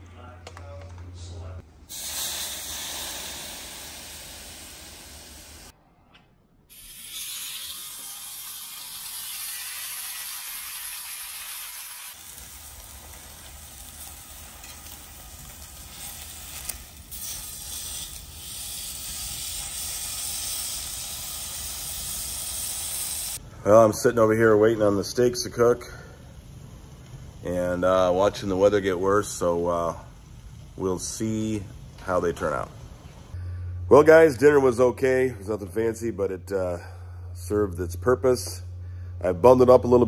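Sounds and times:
steaks sizzling on griddle: 6.8s - 23.4s.

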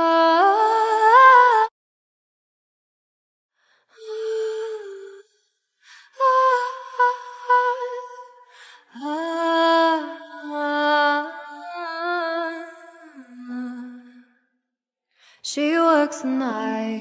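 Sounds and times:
woman singing slow melody: 0.0s - 1.7s, 4.0s - 5.3s, 6.0s - 14.2s, 15.4s - 17.0s.

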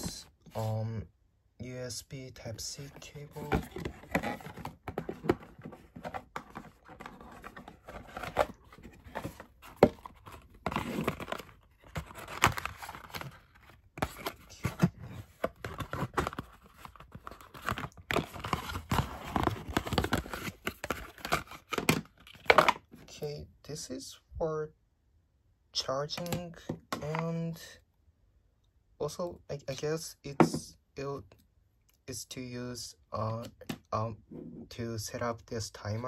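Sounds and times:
cardboard packaging rustling: 2.8s - 22.9s.

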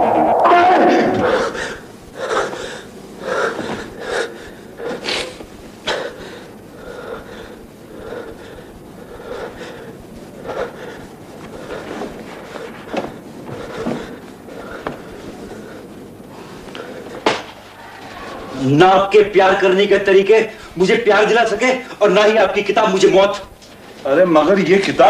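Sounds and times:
man breathing: 1.1s - 18.6s.

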